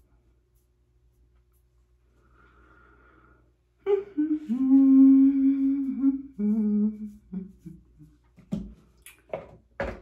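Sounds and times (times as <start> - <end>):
woman humming: 3.8 - 8.2.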